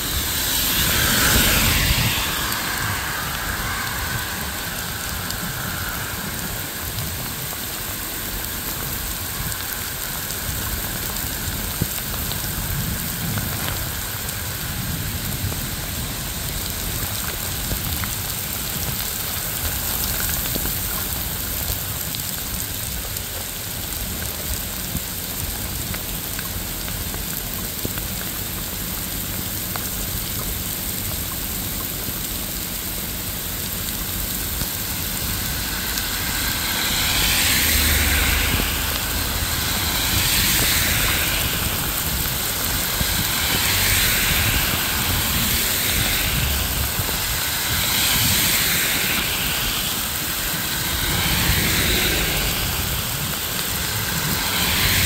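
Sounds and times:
swishing hisses: 0:00.0 - 0:06.2
steady rain falling: 0:00.0 - 0:55.0.

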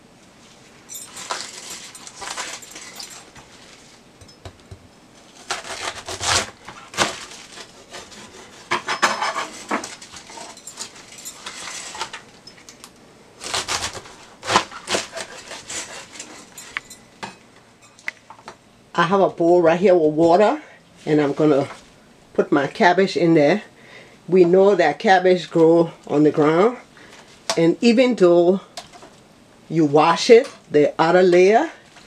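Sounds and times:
handling noises: 0:00.4 - 0:18.6
knife cutting cabbage: 0:05.2 - 0:12.1, 0:13.4 - 0:16.5.

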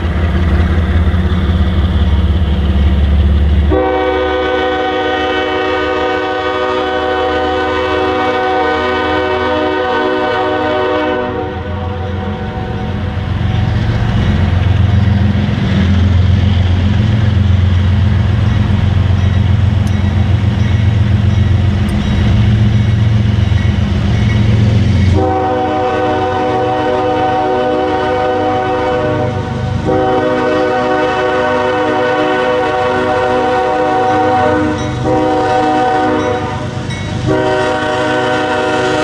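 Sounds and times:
diesel locomotive rumble: 0:00.0 - 0:39.0
train air horn chord: 0:03.7 - 0:12.7, 0:25.1 - 0:39.0.

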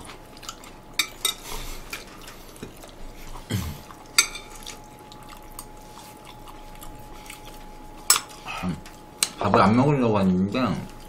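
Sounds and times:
utensils clinking on ceramic: 0:04.2 - 0:04.6, 0:08.1 - 0:08.4.

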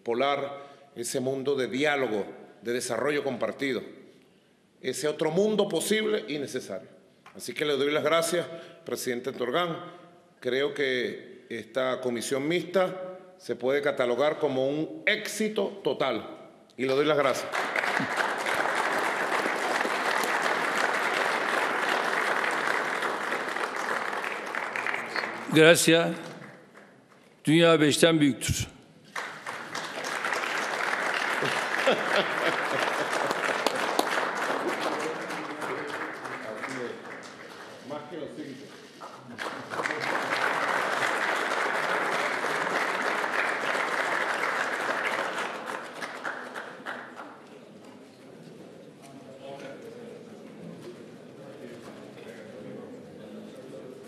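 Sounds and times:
audience applauding: 0:17.2 - 0:27.3, 0:29.1 - 0:38.2, 0:38.8 - 0:47.6.

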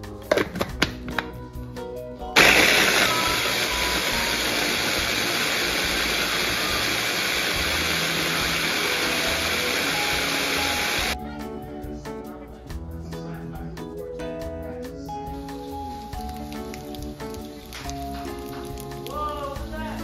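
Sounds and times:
background music: 0:00.0 - 0:20.0
electric food chopper motor: 0:02.4 - 0:11.2.

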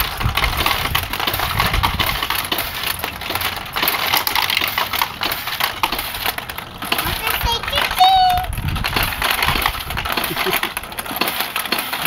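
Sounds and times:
pachinko balls clattering: 0:00.0 - 0:12.0.

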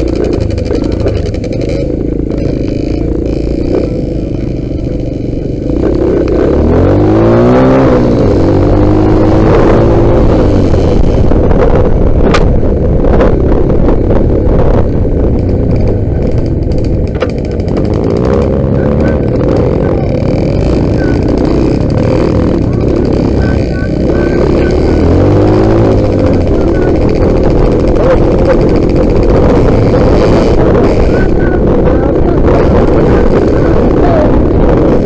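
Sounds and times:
dirt bike engine accelerating: 0:00.0 - 0:35.0.

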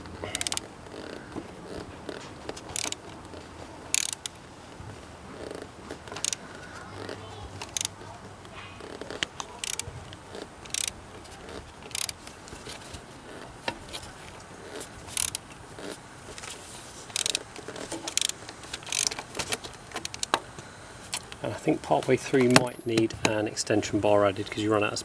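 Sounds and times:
ratchet clicking: 0:00.3 - 0:01.2, 0:02.5 - 0:03.2, 0:03.9 - 0:04.4, 0:05.4 - 0:06.4, 0:07.0 - 0:08.0, 0:08.8 - 0:12.2, 0:14.7 - 0:15.9, 0:17.1 - 0:19.2, 0:20.0 - 0:20.4.

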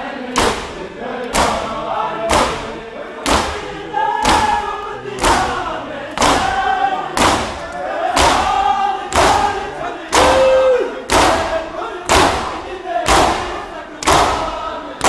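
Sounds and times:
crowd singing together: 0:00.0 - 0:15.0
hands slapping bare chests: 0:00.4 - 0:01.7, 0:02.3 - 0:03.6, 0:04.2 - 0:04.6, 0:05.2 - 0:05.6, 0:06.2 - 0:06.5, 0:07.2 - 0:08.5, 0:09.1 - 0:12.5, 0:13.1 - 0:14.6.

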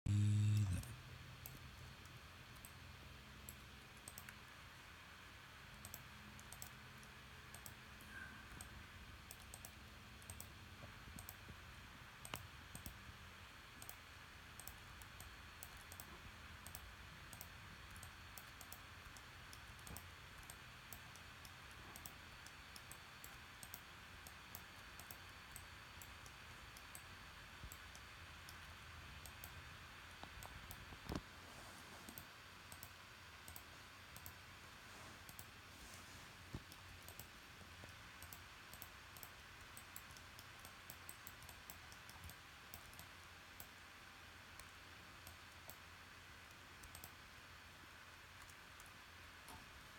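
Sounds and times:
computer mouse clicking: 0:00.1 - 0:02.8, 0:03.4 - 0:04.5, 0:05.8 - 0:11.6, 0:12.2 - 0:13.0, 0:13.8 - 0:31.3, 0:32.0 - 0:34.4, 0:35.2 - 0:35.6, 0:36.5 - 0:43.8, 0:44.5 - 0:47.2, 0:48.4 - 0:49.7
low steady hum: 0:00.1 - 0:49.9.

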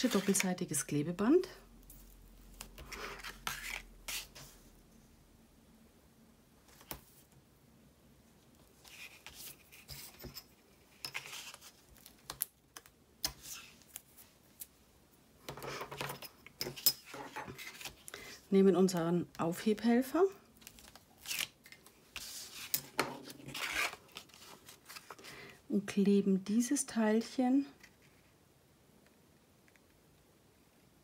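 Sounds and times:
card rustling: 0:00.0 - 0:00.6, 0:20.6 - 0:25.3.

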